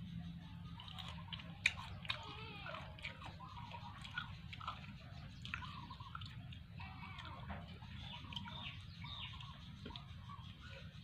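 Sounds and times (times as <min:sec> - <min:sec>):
chewing crunchy mango: 0:00.0 - 0:11.0.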